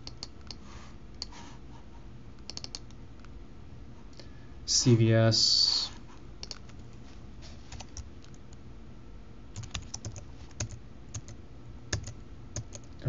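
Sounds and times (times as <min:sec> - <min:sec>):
typing on computer keyboard: 0:00.0 - 0:00.6, 0:02.4 - 0:02.9, 0:06.4 - 0:06.8, 0:09.6 - 0:13.0
low steady background hum: 0:00.0 - 0:13.0.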